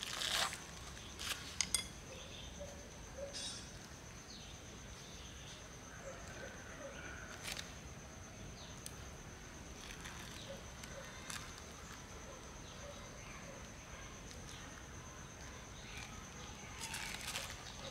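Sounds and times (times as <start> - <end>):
high insect drone: 0.0 - 17.9
bird chirps: 2.1 - 4.5.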